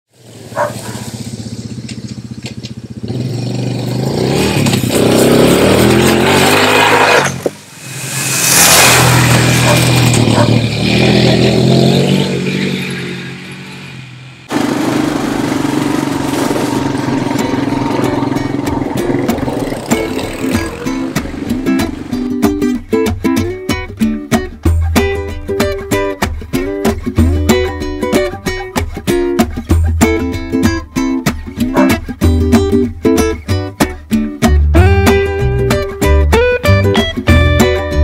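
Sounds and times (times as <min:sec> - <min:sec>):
tyres churning through dry leaves: 0:00.1 - 0:02.4
atv engine revving: 0:00.2 - 0:08.0, 0:08.7 - 0:22.4.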